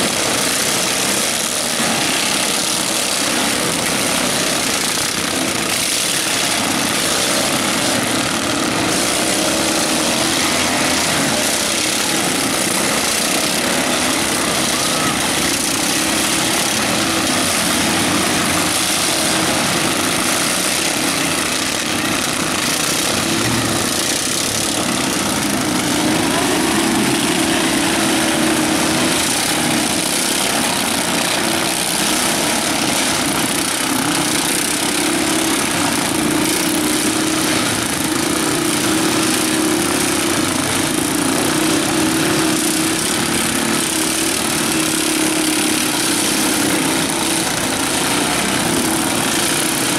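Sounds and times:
lawn mower engines revving: 0.0 - 49.9.

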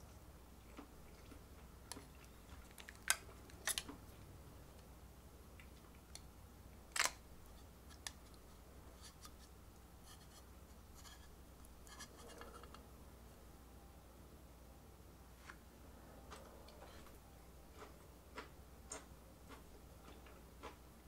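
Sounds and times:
metal spoon scraping plastic cup: 11.0 - 12.8.

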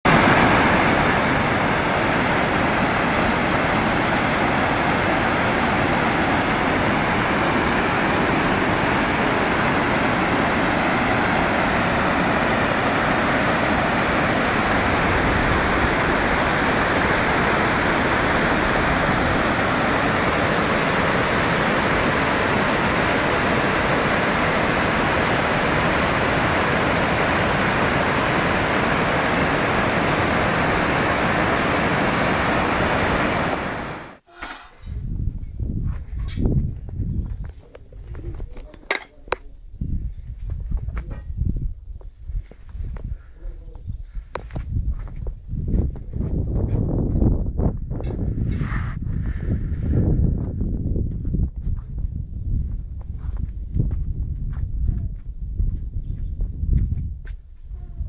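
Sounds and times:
waterfall rushing: 0.1 - 34.2.

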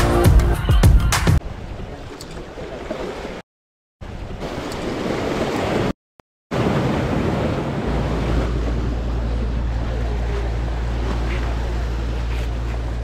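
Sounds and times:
low wind rumble: 6.5 - 13.0
waves washing against rocks: 6.6 - 13.0.

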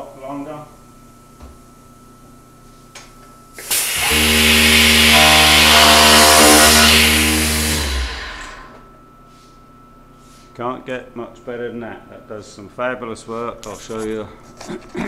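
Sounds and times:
mortiser cutting wood: 3.6 - 8.8
motor hum: 3.6 - 8.9.

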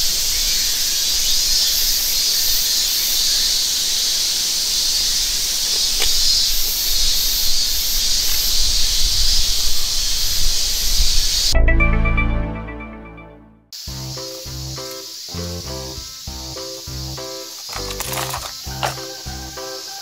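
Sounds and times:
cicadas chorus: 0.0 - 11.6, 13.8 - 20.0
high pulsing insect note: 13.8 - 20.0.

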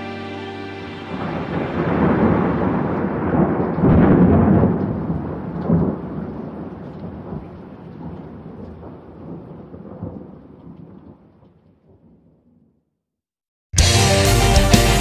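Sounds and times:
steady rain: 0.8 - 12.3
thunder rolling: 1.1 - 12.3.

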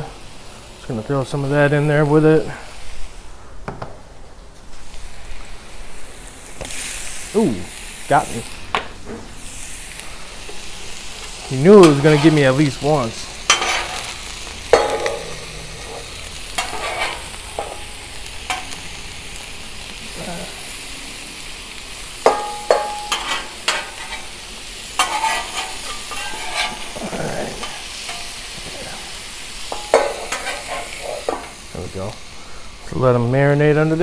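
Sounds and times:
shrimp sizzling in oil: 0.0 - 3.3, 4.7 - 34.0
spatula clacking and scraping metal: 13.5 - 14.1, 14.7 - 17.9, 22.2 - 24.3, 25.0 - 27.0, 27.6 - 28.4, 29.7 - 31.6.

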